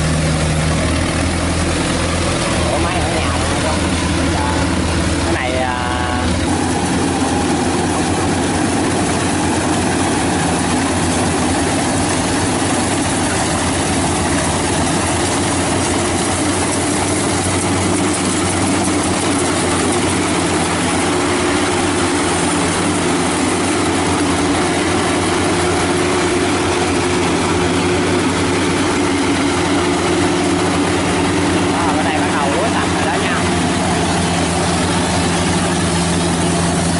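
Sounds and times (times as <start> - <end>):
combine harvester engine drone: 0.0 - 36.9.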